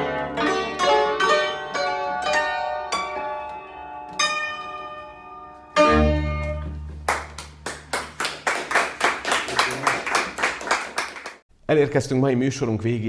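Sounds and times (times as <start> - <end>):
plucked string music: 0.0 - 7.9
rhythmic clapping: 5.9 - 11.4.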